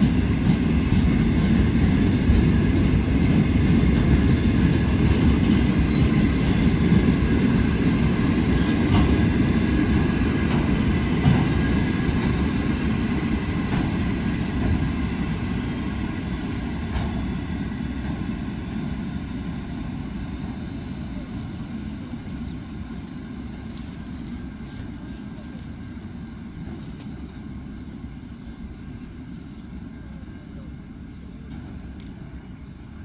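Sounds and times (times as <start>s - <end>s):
train wheels rumbling on rails: 0.0s - 33.0s
high wheel squeal: 2.4s - 9.4s, 11.4s - 14.8s, 20.2s - 25.5s.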